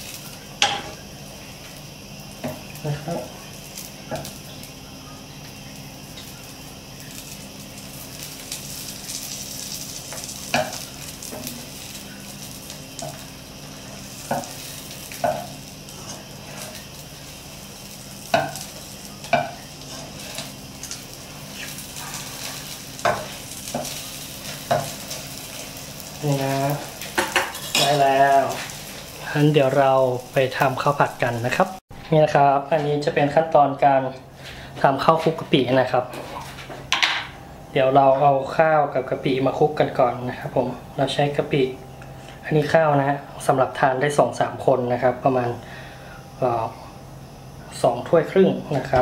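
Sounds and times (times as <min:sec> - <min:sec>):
omelette sizzling in a pan: 0:00.0 - 0:31.8
spatula knocking and scraping pan: 0:19.2 - 0:20.1.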